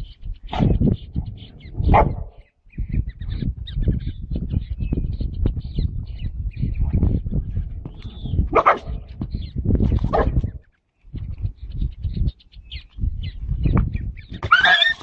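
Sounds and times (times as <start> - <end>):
dog barking: 1.9 - 2.4, 8.5 - 9.0, 10.1 - 10.4.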